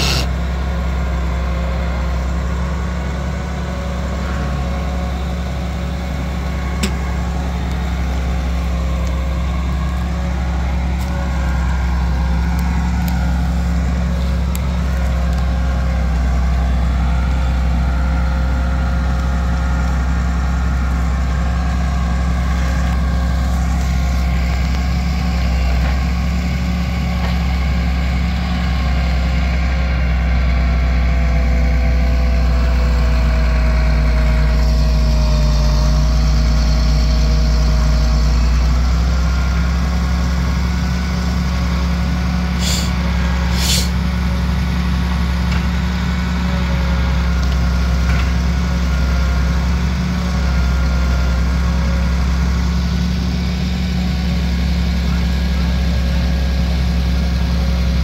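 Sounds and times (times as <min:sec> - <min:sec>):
short hisses: 0:00.0 - 0:00.4, 0:42.6 - 0:44.0
hydraulic crane whine: 0:00.0 - 0:58.0
truck diesel engine running: 0:00.0 - 0:58.0.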